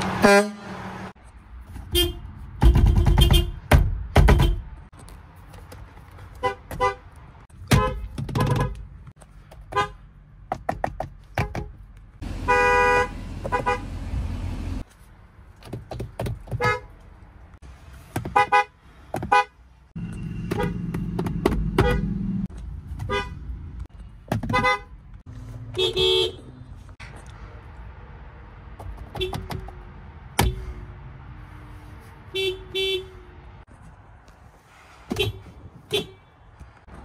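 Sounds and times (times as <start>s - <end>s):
car horns honking: 0.0s - 1.1s, 1.9s - 4.8s, 6.4s - 8.9s, 9.7s - 10.0s, 12.2s - 14.5s, 18.2s - 23.5s, 24.4s - 25.0s, 25.7s - 26.6s, 32.3s - 33.3s, 35.1s - 36.3s.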